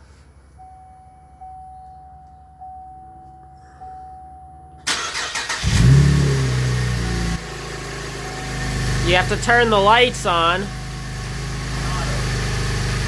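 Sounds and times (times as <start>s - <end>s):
car electronic warning chime: 0.4s - 5.6s, 8.1s - 12.5s
starter motor cranking: 4.9s - 6.2s
car engine revving: 4.9s - 13.0s.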